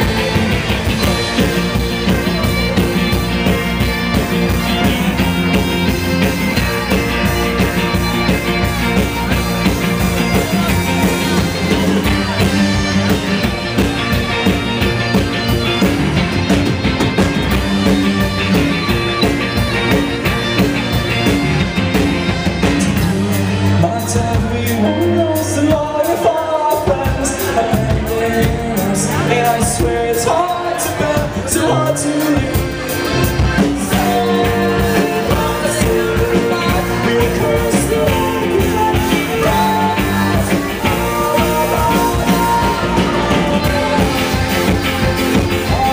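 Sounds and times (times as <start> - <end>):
live folk-rock band: 0.0 - 45.9
people singing: 23.0 - 45.9.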